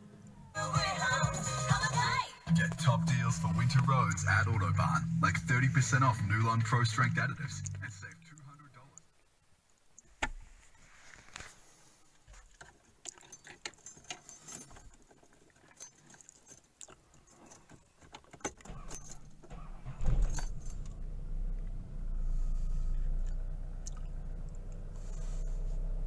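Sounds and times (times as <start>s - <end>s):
car engine starting and idling: 0.0s - 8.6s, 18.6s - 26.0s
keys jangling: 12.6s - 21.2s.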